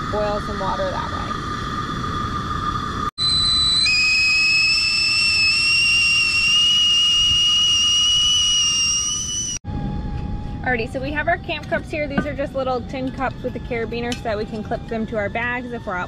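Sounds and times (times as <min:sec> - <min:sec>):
tea kettle whistling: 0:03.2 - 0:09.6.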